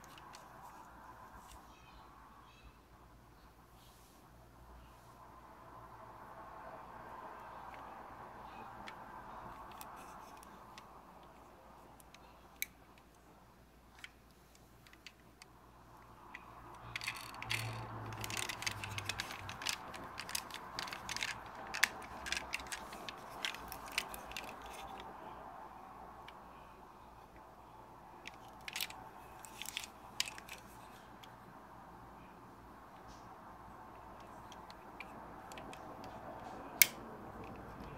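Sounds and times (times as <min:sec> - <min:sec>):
metal toy truck parts clicking: 0:13.9 - 0:25.1, 0:28.2 - 0:31.3.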